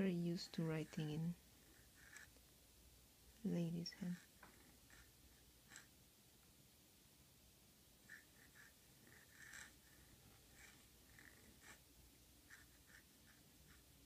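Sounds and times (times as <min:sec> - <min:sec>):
fountain pen scratching on paper: 0:00.5 - 0:02.4, 0:04.0 - 0:05.9, 0:08.0 - 0:11.8, 0:12.4 - 0:14.0.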